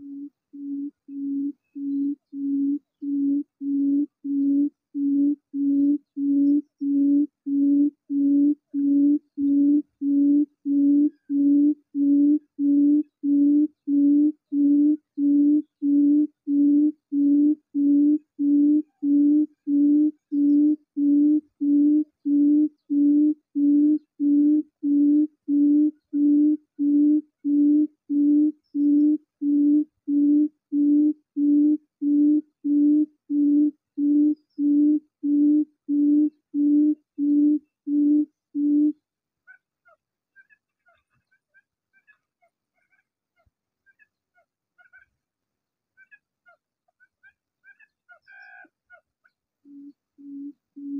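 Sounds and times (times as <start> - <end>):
faint high chirps: 0.0 - 32.8, 49.6 - 50.9.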